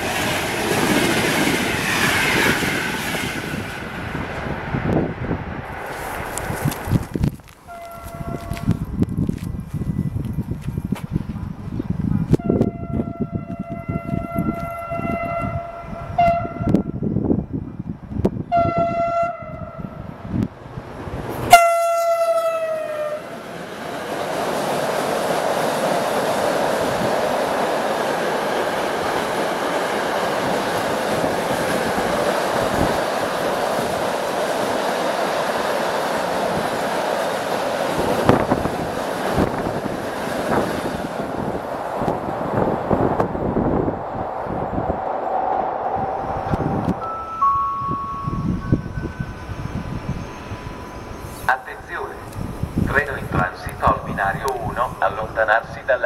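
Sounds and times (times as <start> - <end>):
train wagons rolling past: 0.0 - 16.6, 20.5 - 47.3
train horn blasts: 7.7 - 8.7, 12.3 - 16.9, 18.5 - 20.0, 21.5 - 23.3.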